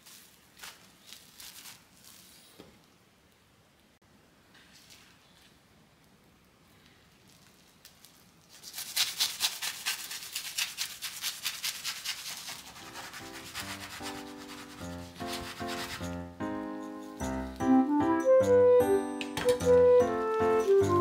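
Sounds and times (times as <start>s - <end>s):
knife sawing through wrapped sandwich: 8.6s - 16.0s
plucked background music: 14.1s - 21.0s.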